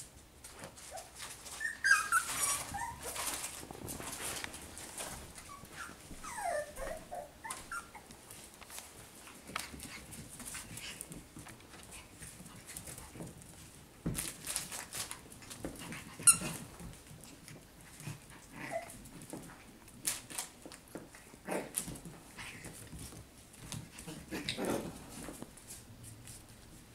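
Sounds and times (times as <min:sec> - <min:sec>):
puppies yipping and whining: 0:00.8 - 0:03.6, 0:04.8 - 0:08.2, 0:16.1 - 0:16.7, 0:18.5 - 0:19.0
puppy high-pitched squeal: 0:00.9 - 0:03.3, 0:05.5 - 0:08.1.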